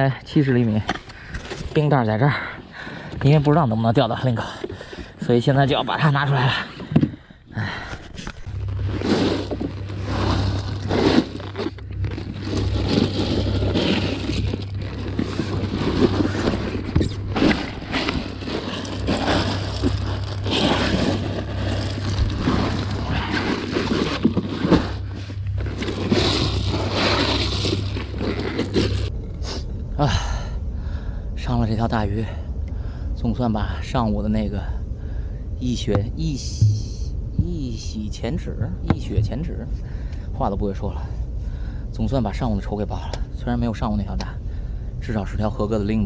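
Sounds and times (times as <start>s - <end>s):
steady low hum: 0.0s - 46.0s
rustling and scraping: 0.8s - 2.0s, 3.1s - 29.1s.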